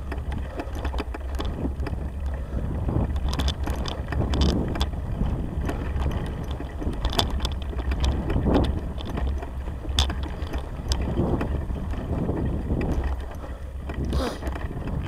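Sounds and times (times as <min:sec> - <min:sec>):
bicycle rumbling over grass: 0:00.0 - 0:15.0
bike rattling clicks and knocks: 0:00.0 - 0:15.0
wind on microphone: 0:00.0 - 0:15.0.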